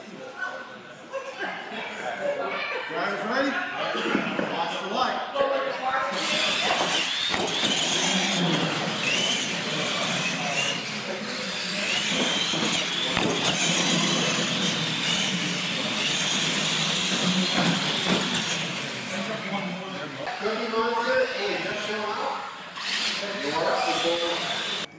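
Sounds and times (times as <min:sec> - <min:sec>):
toy truck motors whining: 0:06.0 - 0:24.9.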